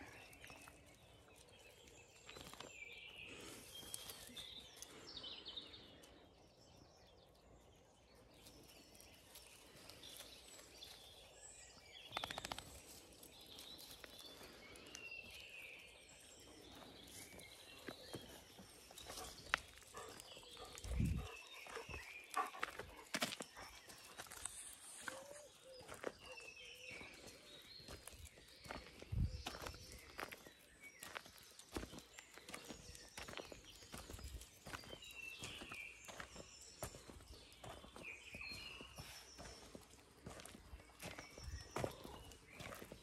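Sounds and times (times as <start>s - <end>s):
birds chirping and singing: 0.0s - 43.0s
footsteps crunching on gravel: 15.2s - 43.0s.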